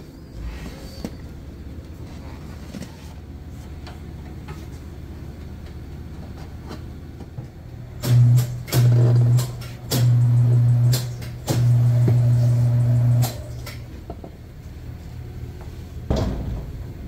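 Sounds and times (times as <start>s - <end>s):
handling noises: 0.0s - 7.6s.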